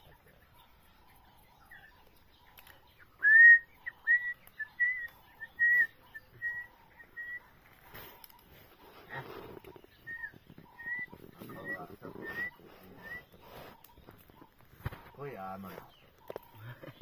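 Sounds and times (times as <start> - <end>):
high whistled notes: 3.2 - 7.4.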